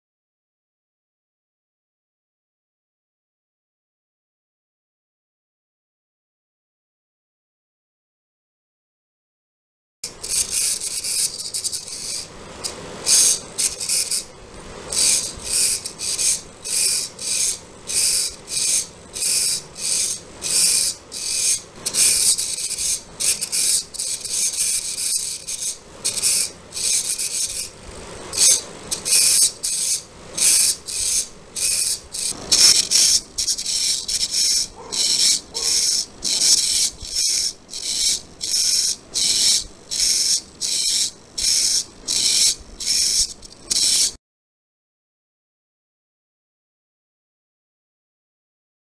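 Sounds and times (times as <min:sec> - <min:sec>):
servo motor whirring: 0:10.2 - 0:14.3, 0:14.9 - 0:44.1.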